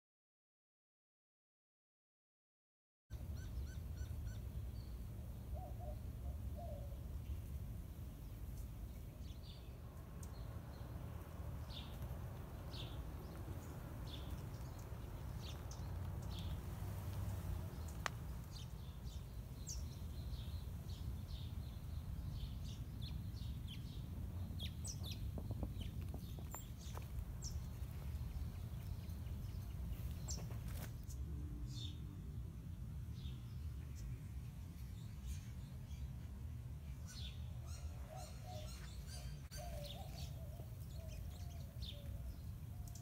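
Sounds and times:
birds chirping: 0:03.1 - 0:32.0, 0:33.2 - 0:43.0
low background rumble: 0:03.2 - 0:35.2.

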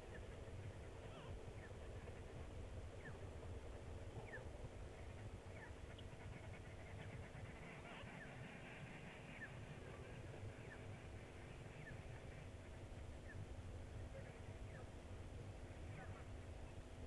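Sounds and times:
faint low rumble: 0:00.0 - 0:17.0
bird calling: 0:04.2 - 0:04.4.

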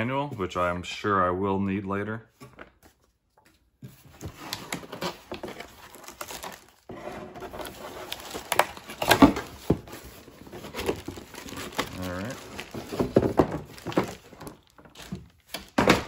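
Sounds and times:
cardboard scraping and rustling: 0:03.9 - 0:16.0
plastic wrap crinkling: 0:04.3 - 0:06.9, 0:07.5 - 0:15.8.

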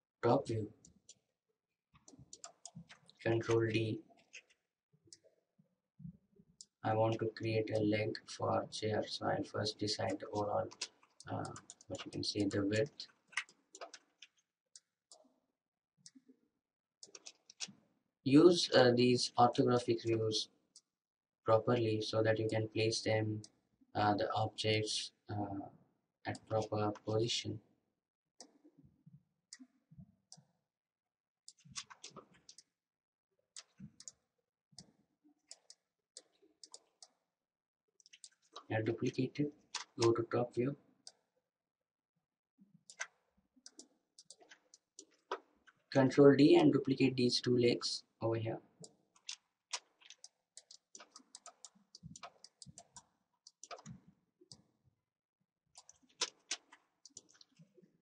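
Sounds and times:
mouse and keyboard clicking: 0:10.1 - 0:14.4, 0:17.0 - 0:17.8, 0:31.5 - 0:32.7, 0:35.5 - 0:37.2, 0:38.0 - 0:40.2, 0:42.9 - 0:45.5, 0:48.8 - 0:54.6, 0:55.8 - 0:57.6.

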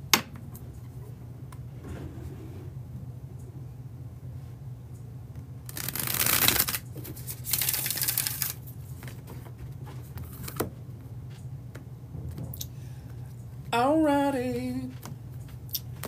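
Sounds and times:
steady low hum: 0:00.0 - 0:16.0
cards riffle-shuffled: 0:05.7 - 0:09.2.

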